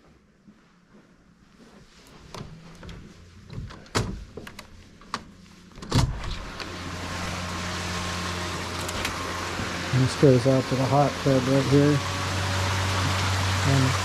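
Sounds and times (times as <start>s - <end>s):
outdoor hum and hiss: 0.0s - 14.0s.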